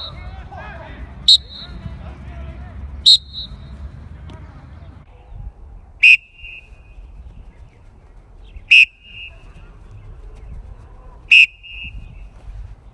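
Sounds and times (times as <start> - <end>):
sports whistle blasts: 0.0 - 0.3, 1.2 - 1.9, 3.0 - 3.8, 6.0 - 6.7, 8.7 - 9.3, 11.3 - 12.0.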